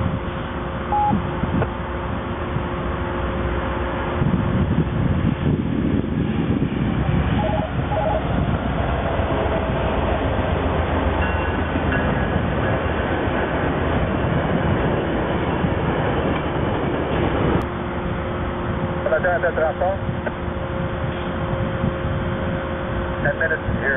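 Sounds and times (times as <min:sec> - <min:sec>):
train wheels rumbling on rails: 0:00.0 - 0:23.9
faint high ringing tones: 0:00.9 - 0:01.2.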